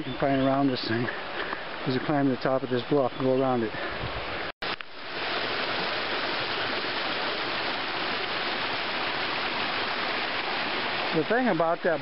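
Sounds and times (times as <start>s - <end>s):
water rushing over rock ledges: 4.6s - 12.0s.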